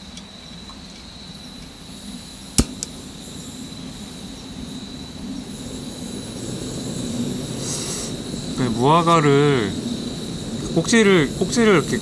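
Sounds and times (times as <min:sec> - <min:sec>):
crickets chirping: 0:00.0 - 0:12.0
sharp click: 0:02.6 - 0:03.0.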